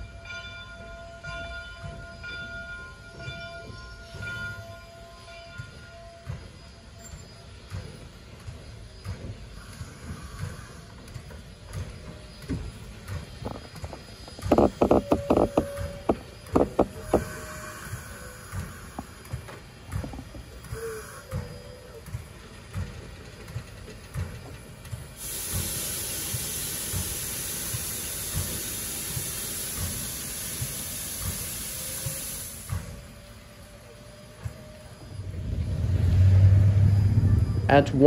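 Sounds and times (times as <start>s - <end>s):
steam hissing from locomotive: 1.8s - 38.0s
low irregular thumps: 11.6s - 20.7s.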